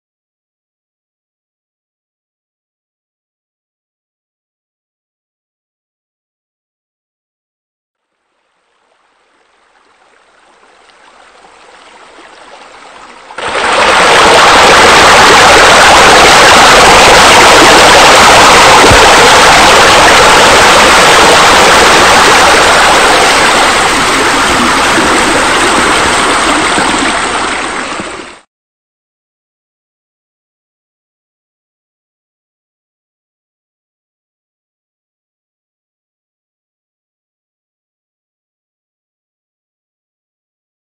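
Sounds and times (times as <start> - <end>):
waterfall rushing and splashing: 11.2 - 28.4.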